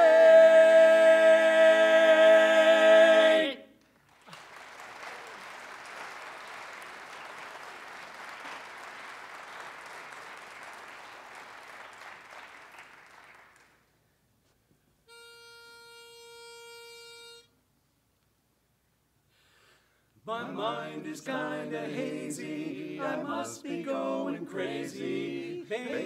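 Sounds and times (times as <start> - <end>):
audience applauding: 4.0 - 14.0
pitch pipe note: 15.1 - 17.5.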